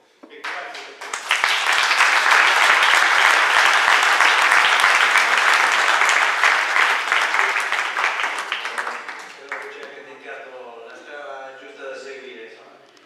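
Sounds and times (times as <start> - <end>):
audience applauding: 0.4 - 10.1.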